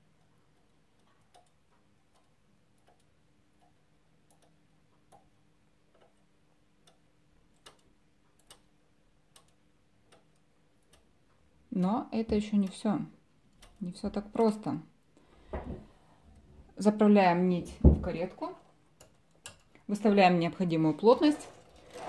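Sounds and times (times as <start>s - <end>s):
knitting machine needle clicks: 0.1s - 11.4s, 12.2s - 14.7s, 18.9s - 19.9s.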